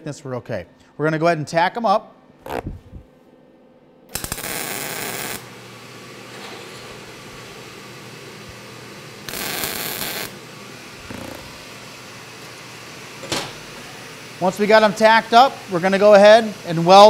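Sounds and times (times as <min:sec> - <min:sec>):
welding arc crackling: 0:04.1 - 0:05.6, 0:09.2 - 0:11.9.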